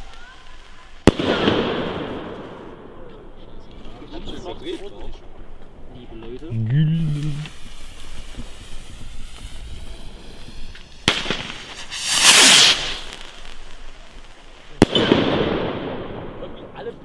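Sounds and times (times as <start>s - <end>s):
firework bang: 1.0s - 3.1s, 7.0s - 16.8s
rocket whooshing: 6.6s - 16.8s
sharp crack: 9.2s - 16.5s.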